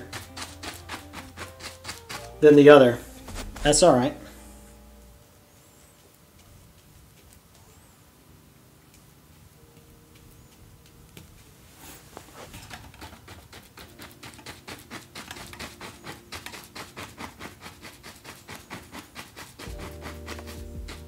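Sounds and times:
paintbrush scrubbing on canvas: 0:00.0 - 0:04.5, 0:11.7 - 0:21.0.

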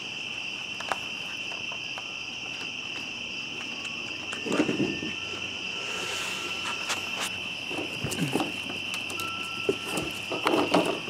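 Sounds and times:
crickets trilling: 0:00.0 - 0:11.0.

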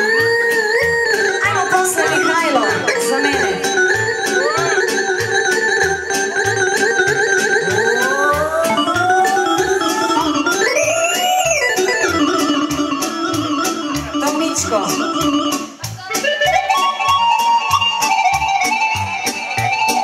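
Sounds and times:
synthesizer lead with bending notes: 0:00.8 - 0:20.0
steady drum beat: 0:01.4 - 0:10.8.

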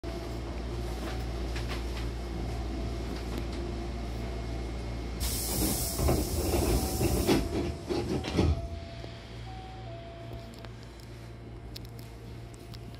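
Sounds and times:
stopped train low hum: 0:00.0 - 0:12.9
loud hiss of air: 0:05.2 - 0:07.5
sliding doors rumbling and knocking: 0:05.6 - 0:08.8.

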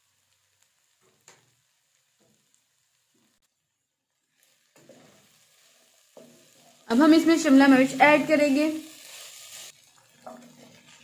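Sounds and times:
vegetables sizzling in a wok: 0:00.0 - 0:11.0
spatula stirring in a wok: 0:04.2 - 0:11.0.

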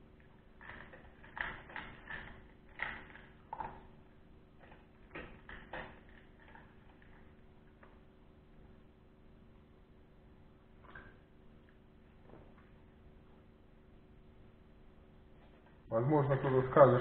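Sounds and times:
puppy crunching dry kibble: 0:00.1 - 0:08.0.

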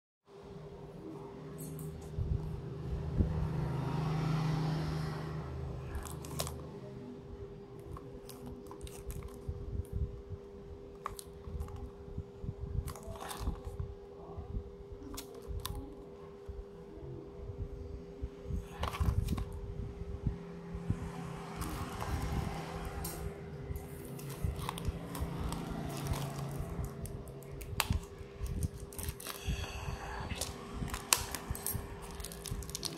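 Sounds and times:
steady low hum: 0:00.3 - 0:32.9
low rumble: 0:02.0 - 0:03.9, 0:04.8 - 0:32.9
plastic film crinkling: 0:07.8 - 0:09.4, 0:23.8 - 0:29.6, 0:30.4 - 0:32.9.

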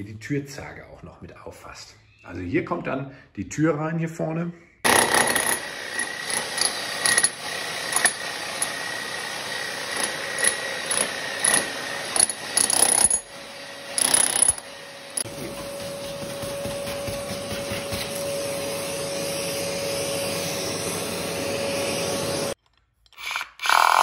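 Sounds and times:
demolition hammer chiselling: 0:04.8 - 0:18.2
vacuum extractor sucking: 0:14.9 - 0:22.6.

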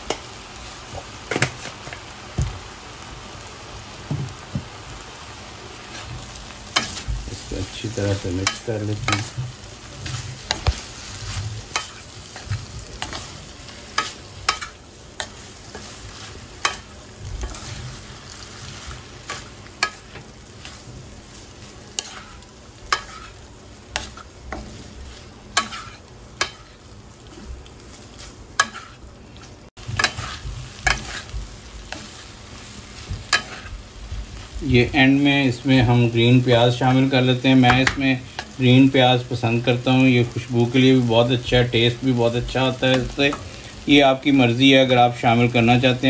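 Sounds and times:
frying sizzle: 0:00.0 - 0:46.0
spatula scraping metal pan: 0:21.9 - 0:24.7, 0:25.6 - 0:26.8, 0:28.6 - 0:29.0, 0:30.0 - 0:31.3.

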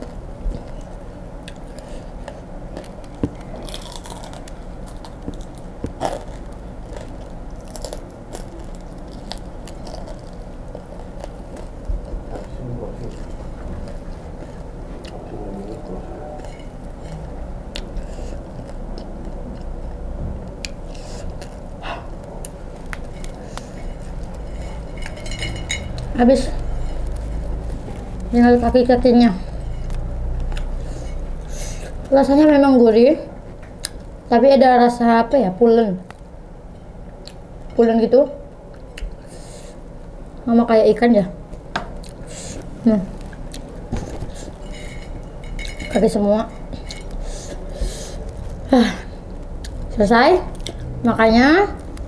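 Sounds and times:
crunchy chewing: 0:00.0 - 0:28.4, 0:29.4 - 0:32.1, 0:46.5 - 0:50.9
low steady hum: 0:00.0 - 0:52.0.

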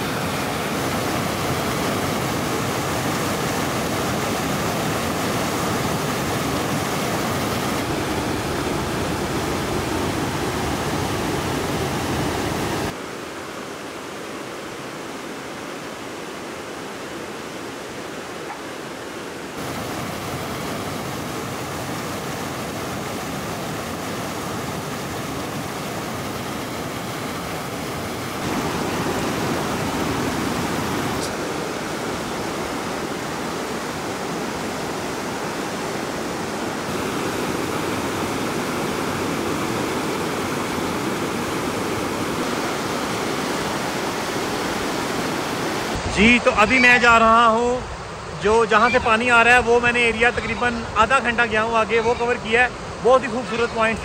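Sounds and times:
stream rushing over rocks: 0:00.0 - 0:54.0.

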